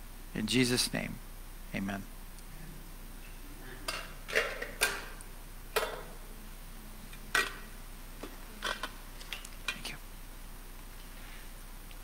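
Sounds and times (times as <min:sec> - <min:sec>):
collection plates clinking: 0:03.8 - 0:05.2, 0:05.8 - 0:06.2.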